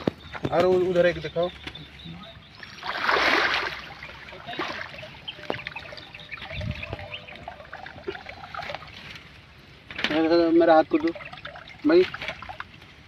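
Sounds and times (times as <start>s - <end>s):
water trickling and dripping: 2.5s - 13.0s
net splashing out of water: 2.7s - 5.0s.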